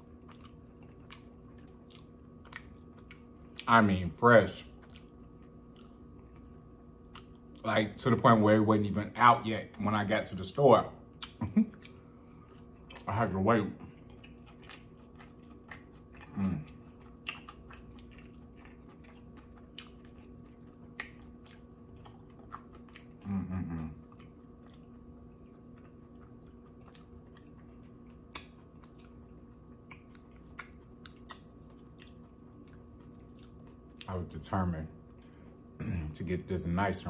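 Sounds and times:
faint steady hum: 0.0 - 37.0
close chewing with mouth clicks: 0.1 - 3.7, 4.6 - 7.7, 11.1 - 13.1, 13.8 - 34.2.

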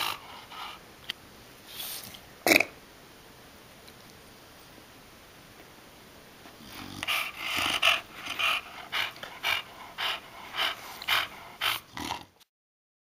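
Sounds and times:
dog panting: 0.0 - 0.8, 6.7 - 12.3.

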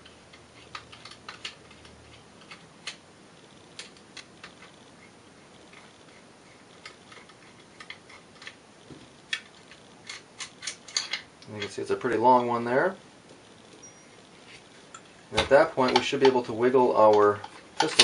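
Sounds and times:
screw ticking and clicking: 0.0 - 3.0, 6.7 - 8.6, 14.9 - 18.0.

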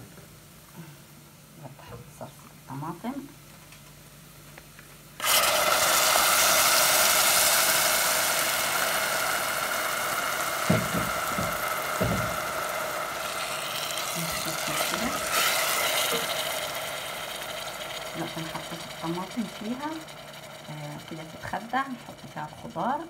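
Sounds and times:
food sizzling in pan: 5.2 - 21.2.

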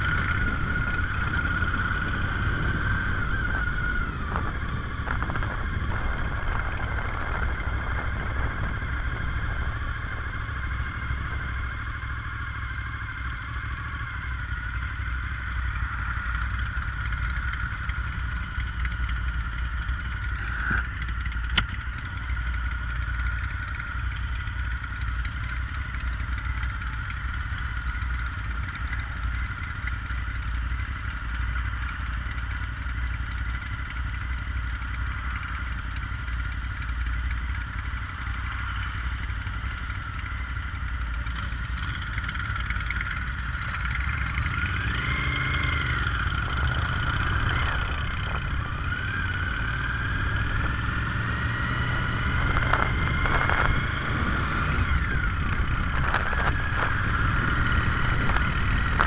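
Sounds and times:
steady high whine: 0.0 - 27.4, 33.8 - 59.0
motorcycle engines idling: 0.0 - 59.0
motorcycle engines revving: 0.0 - 59.0.

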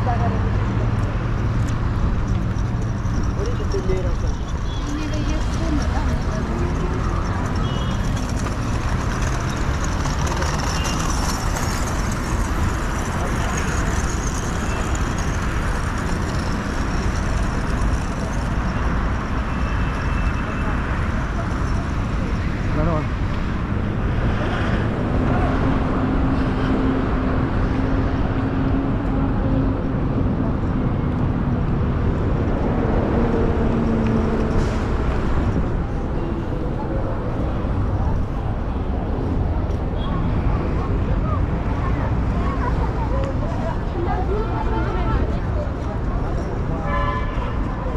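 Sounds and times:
car engines and tyres: 0.0 - 47.9
street traffic: 0.0 - 47.9.

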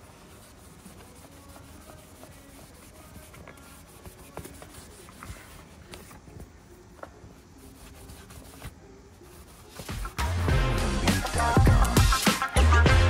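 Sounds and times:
cloth wiping plastic panel: 0.0 - 6.4, 7.0 - 10.3.

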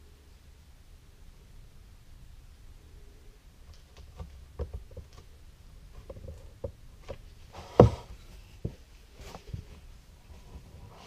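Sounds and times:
loud wooden knock: 7.7 - 8.8.

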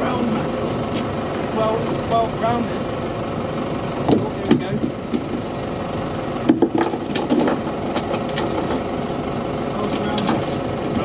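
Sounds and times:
motor boat engine drone: 0.0 - 11.0
sharp knocks and cracks: 4.1 - 5.5, 6.4 - 9.2, 9.8 - 11.0.

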